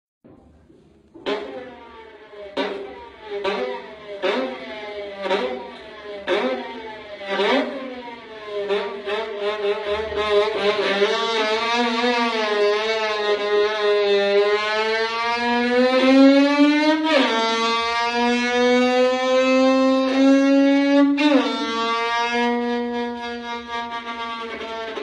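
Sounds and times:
voice imitating motorcycle engine: 0:02.6 - 0:12.9.

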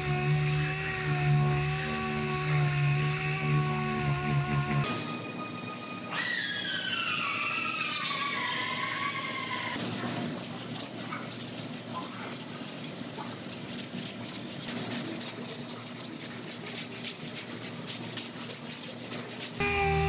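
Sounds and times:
sanding block rubbing filler: 0:00.0 - 0:04.8, 0:09.8 - 0:20.0
orbital sander whining: 0:19.6 - 0:20.0.

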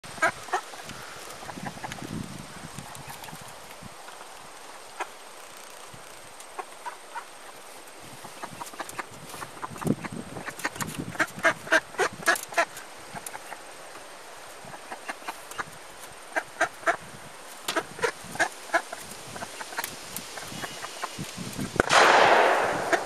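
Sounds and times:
duck quacking: 0:16.3 - 0:17.0.

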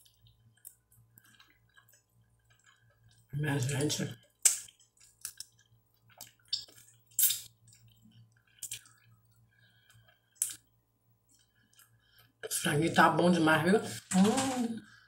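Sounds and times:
wet mouth smacks and sucking: 0:04.4 - 0:09.1, 0:10.4 - 0:10.6.

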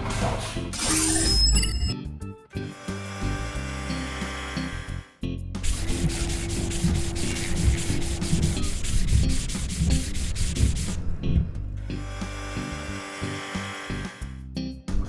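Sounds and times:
spinning brush rubbing: 0:05.6 - 0:11.0.

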